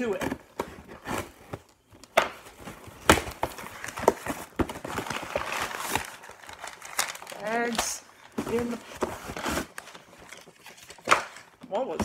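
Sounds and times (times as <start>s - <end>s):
cardboard scraping and rustling: 2.4s - 11.1s.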